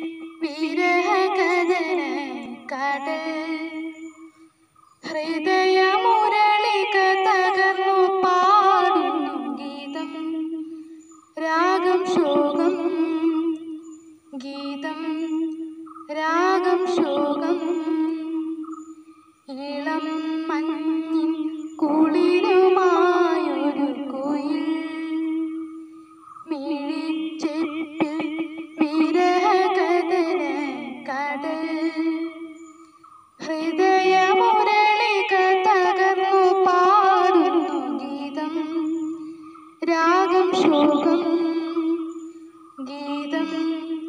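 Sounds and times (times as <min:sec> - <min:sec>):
girl singing solo: 0:11.4 - 0:18.6, 0:26.5 - 0:32.6, 0:33.4 - 0:42.2
faint clicks: 0:13.4 - 0:13.8, 0:15.4 - 0:16.2.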